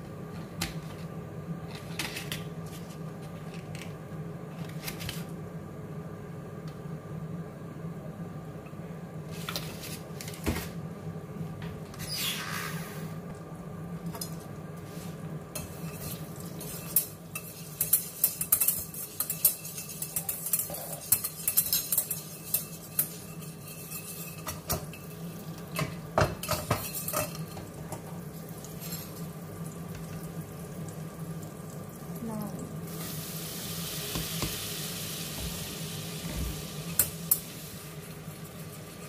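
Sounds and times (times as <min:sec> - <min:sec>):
wire whisk clinking in saucepan: 0:15.6 - 0:25.2, 0:26.4 - 0:27.6.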